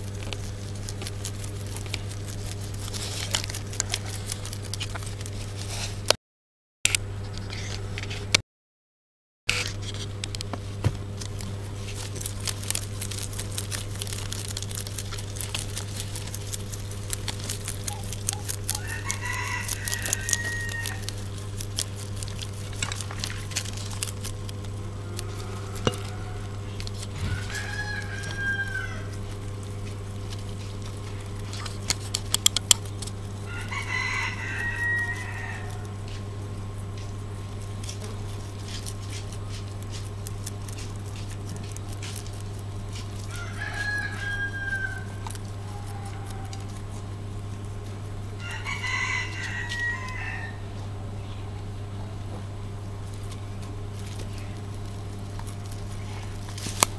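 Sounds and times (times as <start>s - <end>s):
steady low hum: 0.0s - 6.2s, 9.5s - 56.9s
small sharp clicks and crackles: 11.2s - 25.3s, 29.1s - 33.4s, 53.0s - 56.9s
rooster crowing: 18.7s - 21.3s, 24.8s - 29.3s, 33.4s - 36.2s, 43.2s - 46.9s, 48.4s - 50.8s.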